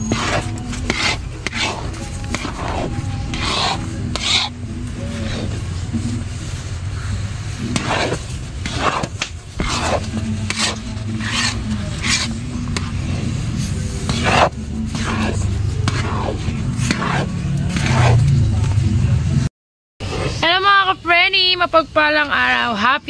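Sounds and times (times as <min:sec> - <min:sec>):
metal utensil scraping pan: 0:00.0 - 0:18.4
steady low hum: 0:00.0 - 0:22.6.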